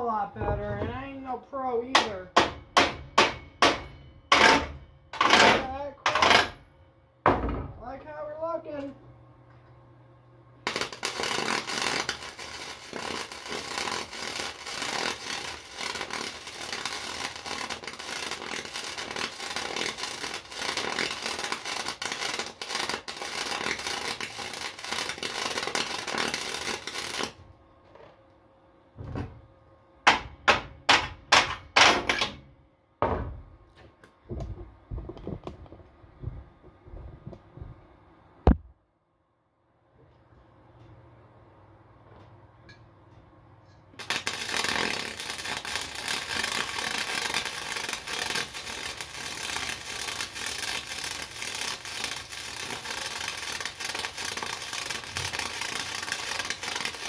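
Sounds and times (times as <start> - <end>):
sharp strikes on metal: 2.0 - 6.2
welding arc crackling: 3.6 - 6.6, 10.6 - 27.4, 44.0 - 57.0.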